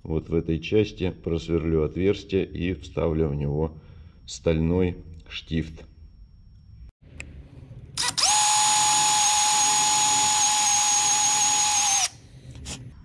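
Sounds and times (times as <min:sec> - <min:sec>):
cordless drill boring into wood: 0:08.0 - 0:12.2.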